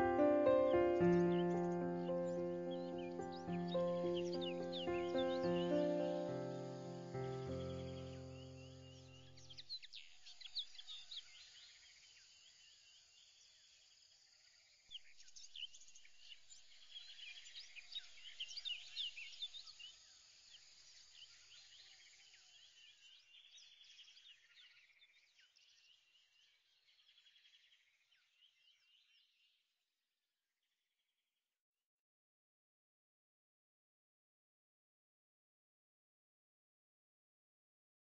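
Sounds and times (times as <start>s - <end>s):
small birds chirping and twittering: 0.0s - 29.7s.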